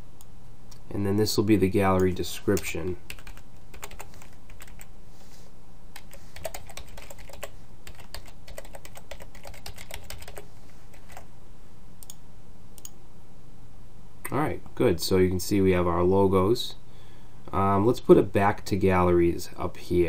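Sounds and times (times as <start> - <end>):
low background hum: 0.0 - 20.0
keyboard typing clicks: 12.0 - 12.2.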